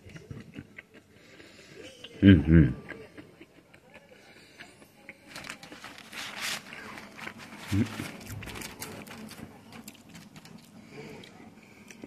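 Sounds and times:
crunchy chewing: 0:04.6 - 0:12.0.

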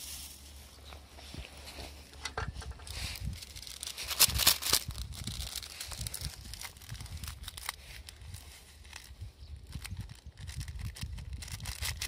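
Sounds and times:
plastic sachet crinkling and tearing: 0:02.9 - 0:12.0.

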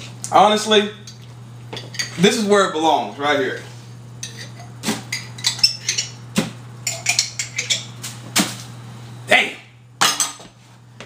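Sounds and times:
steady low hum: 0:00.0 - 0:11.0
glass jar and spoon clinking: 0:04.2 - 0:06.2, 0:06.8 - 0:07.9.

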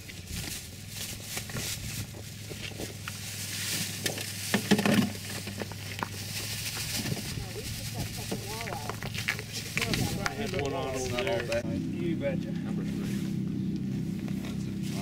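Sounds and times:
knocks and rustles: 0:00.0 - 0:10.7
plastic bag crinkling: 0:00.5 - 0:10.6.

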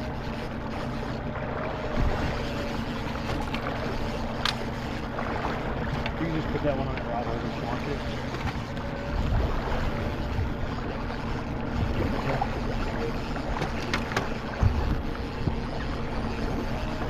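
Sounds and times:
outboard motor humming: 0:00.0 - 0:17.0
wind buffeting microphone: 0:08.5 - 0:17.0.

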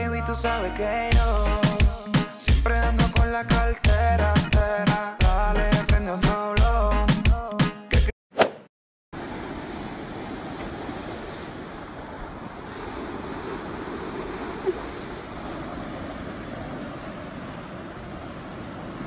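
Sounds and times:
short blip: 0:08.4 - 0:08.7
ocean surf washing onto beach: 0:09.2 - 0:19.0.

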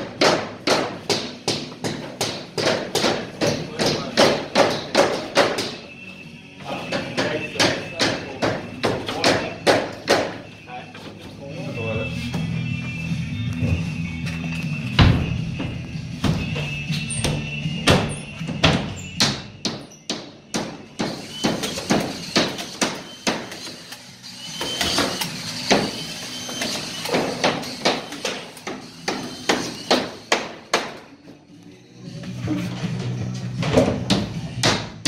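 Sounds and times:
hammer striking nails: 0:00.0 - 0:05.8, 0:06.9 - 0:10.4, 0:17.2 - 0:23.7, 0:24.6 - 0:26.0, 0:27.0 - 0:31.0, 0:33.6 - 0:35.0.

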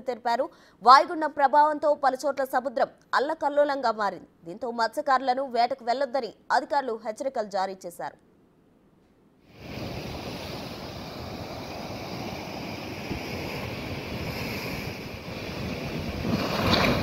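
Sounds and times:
wind on microphone: 0:09.5 - 0:17.0
surf breaking on rocks: 0:09.6 - 0:17.0.

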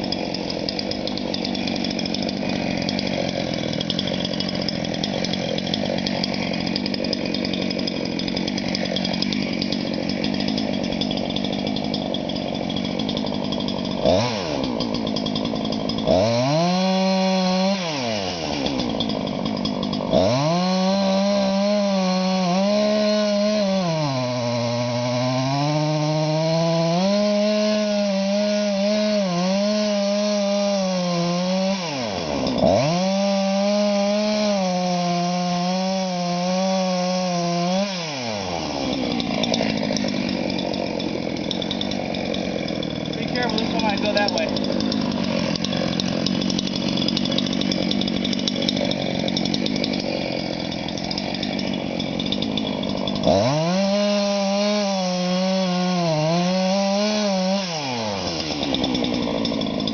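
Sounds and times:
chainsaw cutting wood: 0:00.0 - 0:59.9
person speaking: 0:43.1 - 0:44.8.

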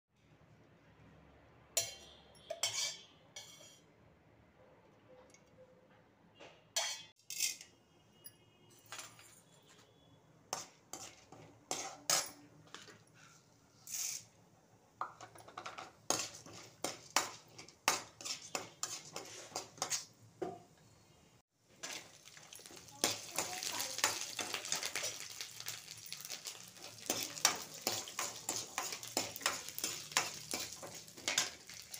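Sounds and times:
metal spoon clinking on pan: 0:01.8 - 0:03.9, 0:06.8 - 0:08.3, 0:10.5 - 0:12.8, 0:21.8 - 0:31.9.

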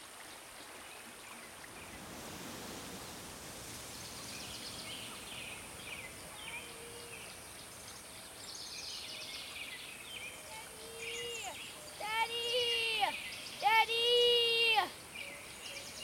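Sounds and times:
steady hiss: 0:00.0 - 0:16.0
small birds chirping: 0:03.8 - 0:16.0
distant child calling out: 0:10.5 - 0:15.0.

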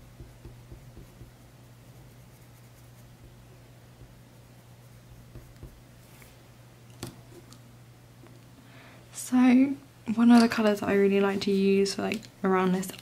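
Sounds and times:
pencil scratching on paper: 0:00.0 - 0:03.4, 0:04.0 - 0:05.8
low steady hum: 0:00.0 - 0:13.0.

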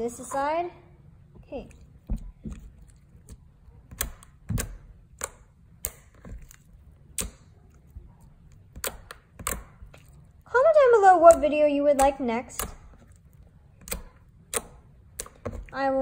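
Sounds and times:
sharp clicks and pops: 0:01.4 - 0:07.8
slime squished by fingers: 0:01.5 - 0:10.4, 0:11.1 - 0:15.8.

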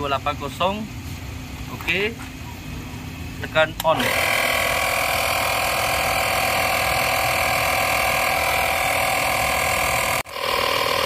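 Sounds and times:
tyre inflator compressor running: 0:03.4 - 0:11.0.

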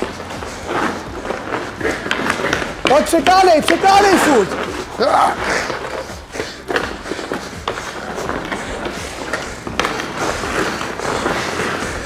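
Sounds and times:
skate blades scraping ice: 0:00.0 - 0:12.0
stick clicking on puck: 0:06.7 - 0:11.8.

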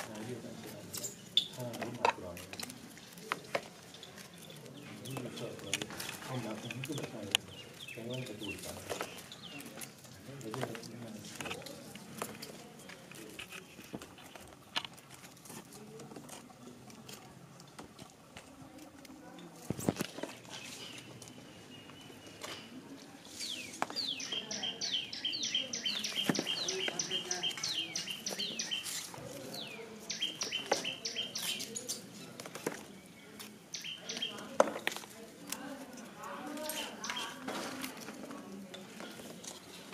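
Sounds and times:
hands handling paper clicks and rustles: 0:00.0 - 0:22.7, 0:31.4 - 0:33.6, 0:34.2 - 0:39.9.

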